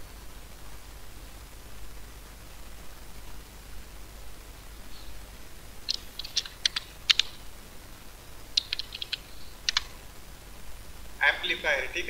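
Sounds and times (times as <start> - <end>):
computer keyboard key clicks: 5.9 - 7.4, 8.6 - 9.9.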